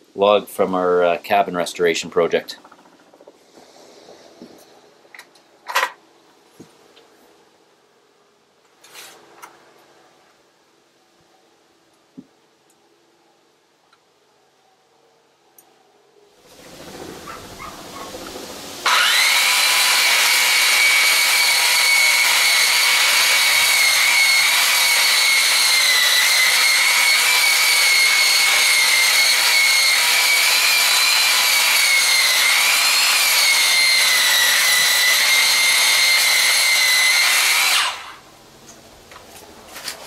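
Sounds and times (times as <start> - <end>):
abrasive wheel sanding a log: 16.5 - 38.2
wheel sander whining: 16.5 - 38.3.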